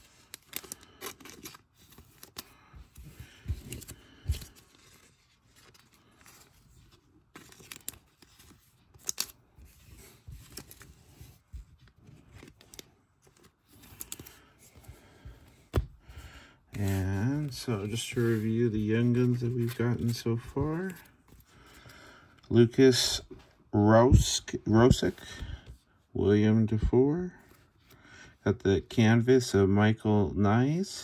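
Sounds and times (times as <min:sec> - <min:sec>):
cardboard cards shuffling: 0:00.0 - 0:22.0.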